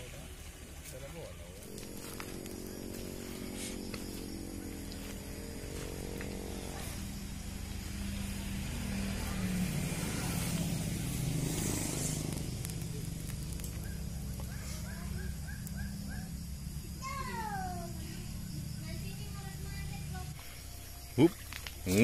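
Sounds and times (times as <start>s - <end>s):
vehicle engine passing: 1.6s - 16.9s.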